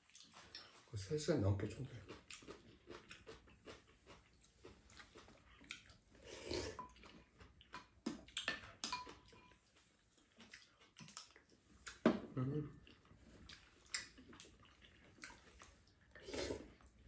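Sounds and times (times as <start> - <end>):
chewing: 0.0 - 1.0, 1.7 - 17.0
soup being sipped: 6.2 - 7.0, 16.1 - 16.9.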